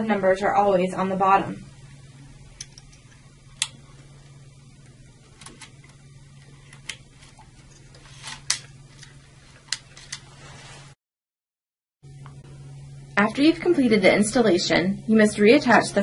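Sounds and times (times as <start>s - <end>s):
steady low hum: 0.0s - 11.0s, 12.0s - 16.0s.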